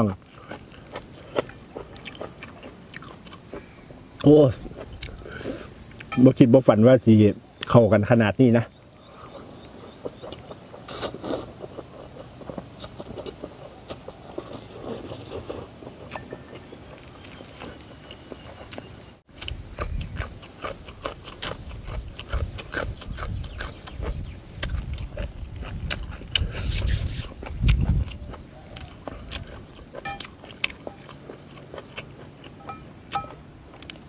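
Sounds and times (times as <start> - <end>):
biting and chewing: 0.0 - 6.3, 9.3 - 34.0
chewing with wet mouth clicks: 0.2 - 6.2, 9.6 - 34.0
wind rumbling on microphone: 19.4 - 20.4, 21.5 - 29.7.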